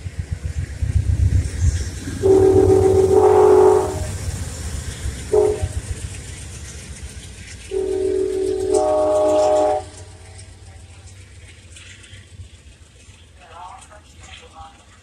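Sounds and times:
low rumble of departing train: 0.0s - 15.0s
train air horn blast: 2.2s - 4.3s, 5.3s - 5.9s, 7.7s - 10.3s.

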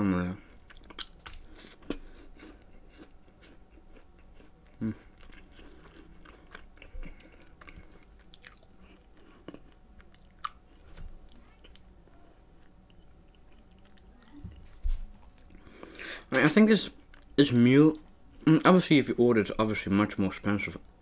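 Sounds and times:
chewing cookie: 0.5s - 16.1s.

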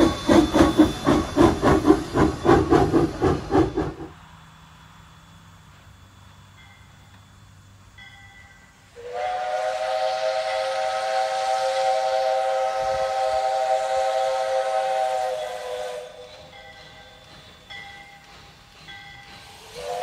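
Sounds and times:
steam hissing: 0.0s - 6.6s, 8.5s - 20.0s
steam locomotive whistle blast: 8.9s - 16.6s, 19.4s - 20.0s.

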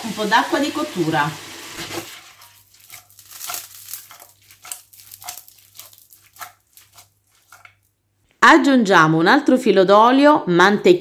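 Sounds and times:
pasta squelching in a pan: 0.2s - 8.4s
pan scraping: 1.7s - 7.9s.

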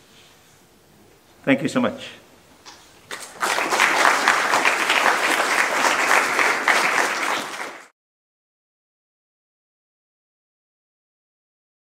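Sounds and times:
hands clapping: 2.7s - 7.9s.

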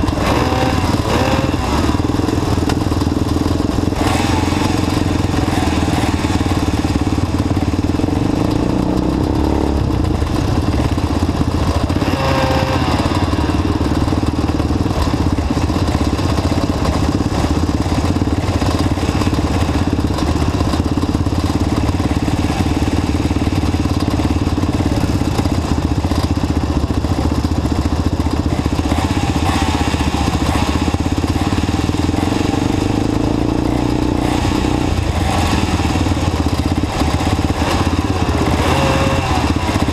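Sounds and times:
quad engines idling: 0.0s - 39.9s.

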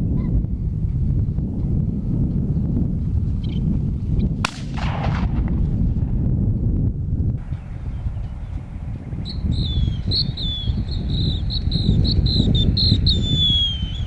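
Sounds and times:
wind on microphone: 0.0s - 14.0s
high-pitched whistled chirps: 9.2s - 14.0s.

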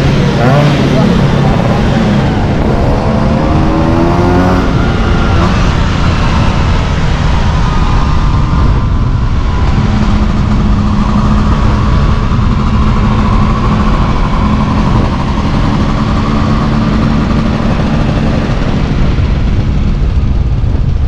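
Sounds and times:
scooter engine running: 0.0s - 21.0s.

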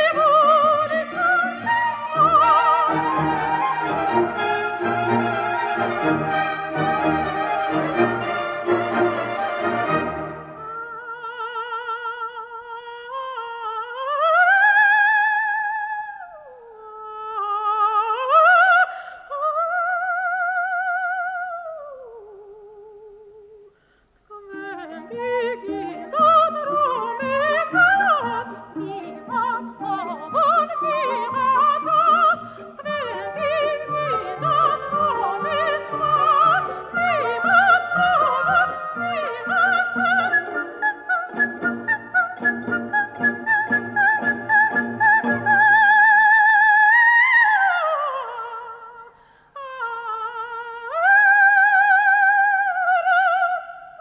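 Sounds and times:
orchestra and choir playing: 0.0s - 10.8s, 24.6s - 45.7s
operatic soprano singing: 0.0s - 54.0s.

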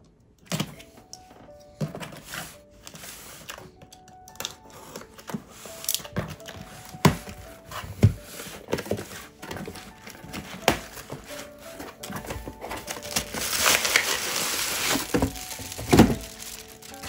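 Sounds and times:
cardboard rustling and scraping: 1.7s - 3.8s, 4.7s - 17.0s
packing tape being slit: 2.2s - 7.4s, 8.4s - 17.0s
cardboard thumps: 6.2s - 17.0s.

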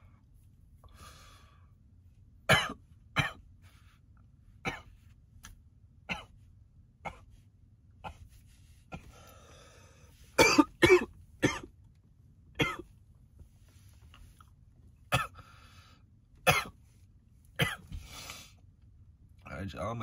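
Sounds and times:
raspy breathing: 0.8s - 1.8s, 8.5s - 10.4s, 15.4s - 16.1s
man coughing: 2.5s - 3.4s, 4.7s - 5.0s, 10.4s - 11.7s, 12.6s - 12.9s, 15.1s - 15.4s, 16.4s - 16.8s, 17.6s - 17.9s.

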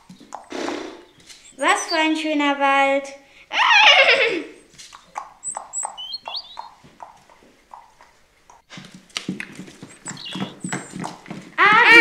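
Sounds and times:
horse hoofbeats clip-clop: 0.0s - 2.1s, 4.6s - 12.0s
faint high chirps: 4.6s - 6.8s, 9.9s - 11.0s.

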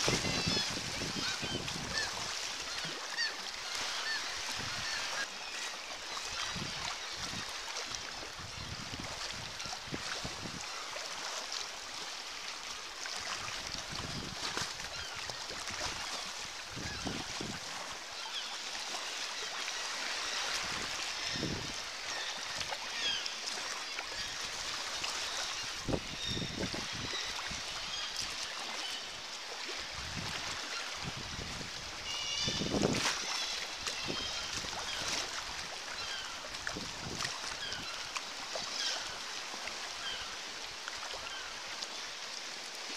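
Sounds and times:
paddle splashes: 0.0s - 42.9s
sea water lapping around kayak: 0.0s - 42.9s
seabirds calling: 0.1s - 7.5s, 18.2s - 29.2s, 32.0s - 36.5s.

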